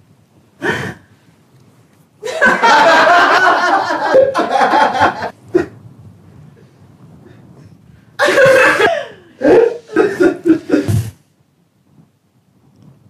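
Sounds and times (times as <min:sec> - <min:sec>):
loud sustained laughing: 0:02.2 - 0:05.8, 0:08.2 - 0:11.1.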